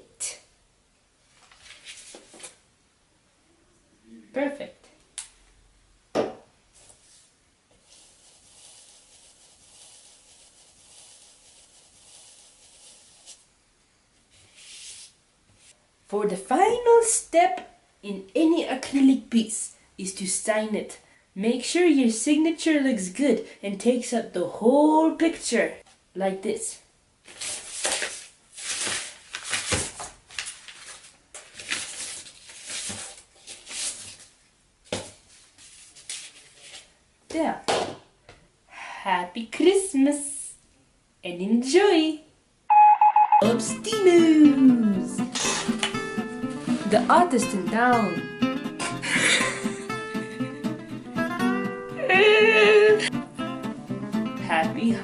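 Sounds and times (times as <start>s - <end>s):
paper rustling and crinkling: 1.3s - 2.6s, 27.2s - 36.9s
paintbrush rasping on paper: 7.0s - 13.5s.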